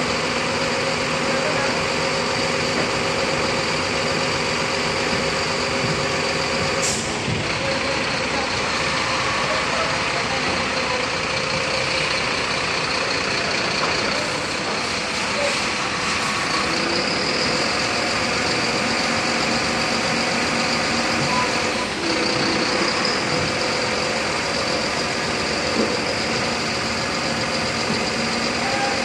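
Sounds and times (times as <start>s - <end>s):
truck engine running: 0.0s - 29.0s.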